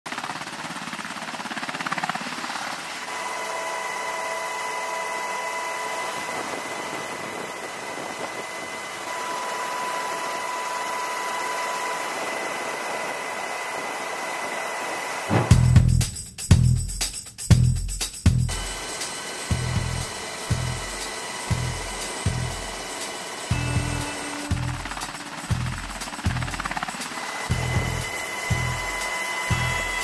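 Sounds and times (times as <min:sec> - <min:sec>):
helicopter rotor and turbine: 0:00.1 - 0:16.0, 0:18.5 - 0:30.0
faint high whining: 0:03.1 - 0:15.5, 0:18.5 - 0:30.0.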